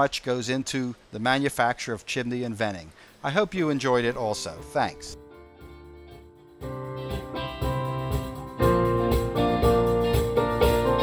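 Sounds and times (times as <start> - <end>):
instrumental background music: 3.8 - 11.0.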